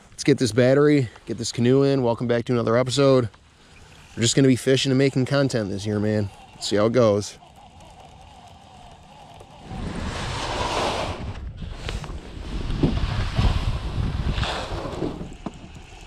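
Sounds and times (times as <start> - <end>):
wind buffeting microphone: 9.5 - 16.0.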